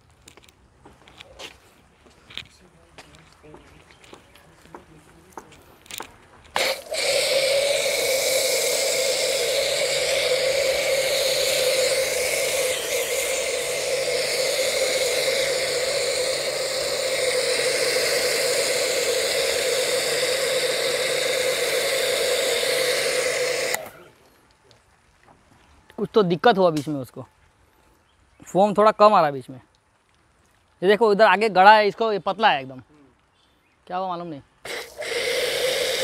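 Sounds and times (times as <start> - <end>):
foam cannon spraying hiss: 6.5 - 24.2, 34.6 - 36.0.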